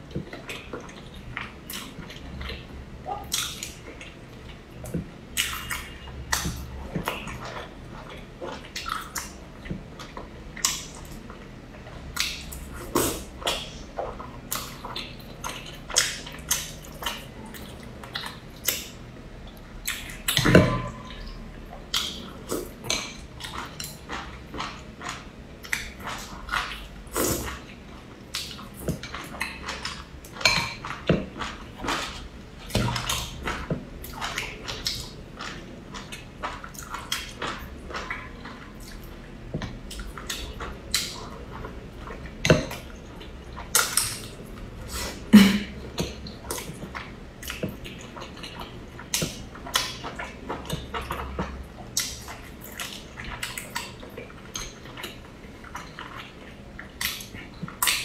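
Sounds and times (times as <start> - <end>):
wet chewing: 12.1 - 58.0.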